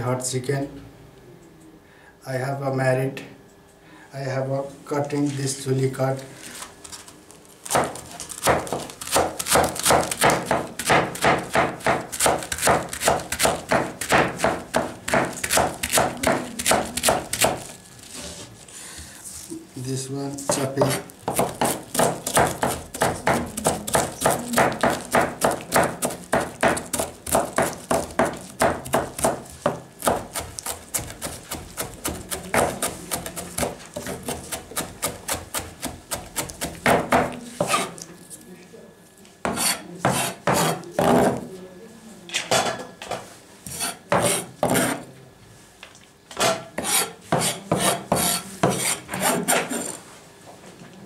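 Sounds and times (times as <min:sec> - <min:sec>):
knife chopping cabbage on board: 0:07.6 - 0:17.7, 0:20.4 - 0:38.0, 0:39.5 - 0:41.4, 0:43.7 - 0:45.0, 0:46.4 - 0:49.9.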